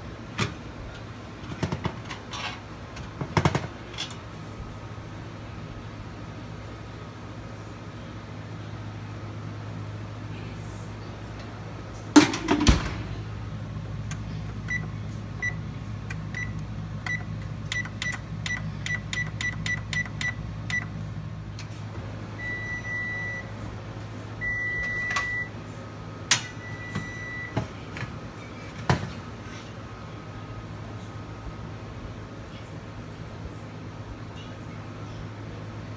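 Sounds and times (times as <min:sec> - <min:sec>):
steady low hum: 0:00.0 - 0:35.9
oven door knock and clatter: 0:12.2 - 0:13.1
oven control panel beeping: 0:14.1 - 0:21.0, 0:22.4 - 0:23.5, 0:24.4 - 0:25.6, 0:26.3 - 0:27.7.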